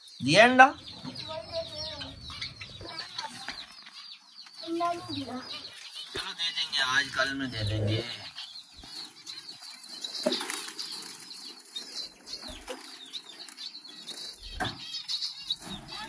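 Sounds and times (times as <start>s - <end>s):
faint bird chirps: 0.0s - 16.0s
birds fluttering wings: 9.8s - 14.9s.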